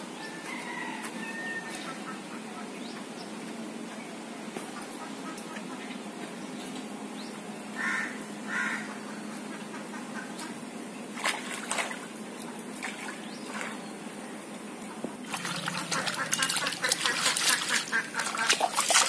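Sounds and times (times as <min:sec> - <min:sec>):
bird calling: 0:07.3 - 0:10.6, 0:15.4 - 0:18.9
water splashing: 0:11.2 - 0:12.1, 0:15.2 - 0:19.0.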